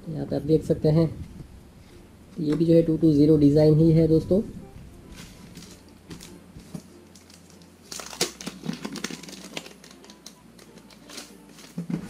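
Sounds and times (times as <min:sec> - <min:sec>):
plastic wrapping crinkling: 0:05.0 - 0:12.0.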